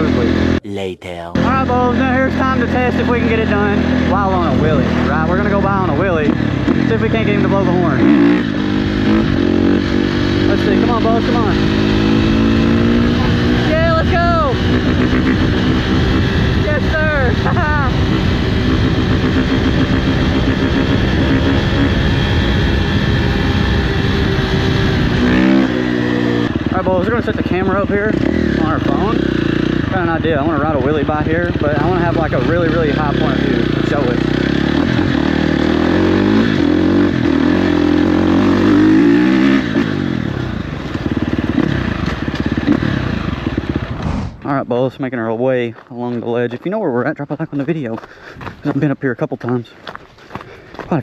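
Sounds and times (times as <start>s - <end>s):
dirt bike engine running: 1.4s - 44.5s, 45.1s - 51.0s
wind rushing on microphone: 43.8s - 44.5s.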